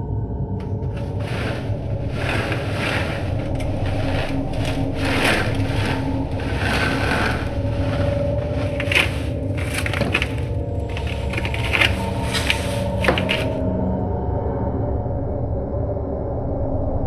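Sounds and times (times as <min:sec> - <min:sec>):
rough scraping and rubbing: 0:00.6 - 0:13.6.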